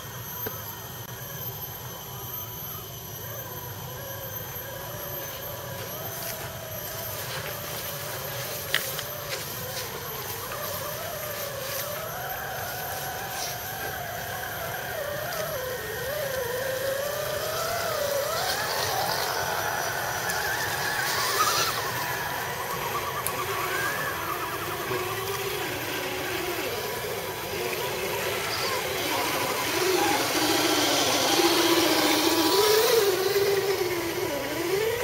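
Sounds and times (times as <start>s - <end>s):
rc truck motors whining: 0.0s - 35.0s.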